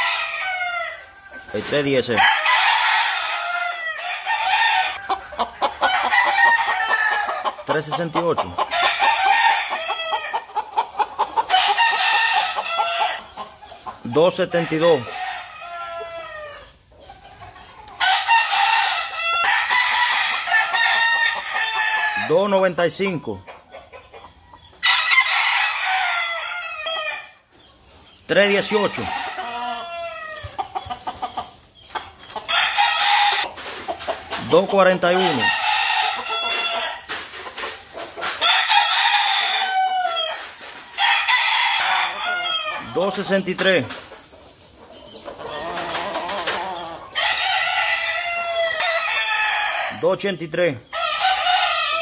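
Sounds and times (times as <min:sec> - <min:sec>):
roosters crowing: 0:00.0 - 0:52.0.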